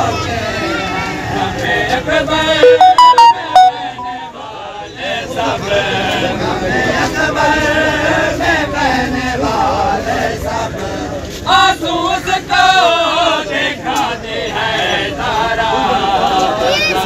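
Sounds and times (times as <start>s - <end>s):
men chanting together: 5.1s - 16.4s.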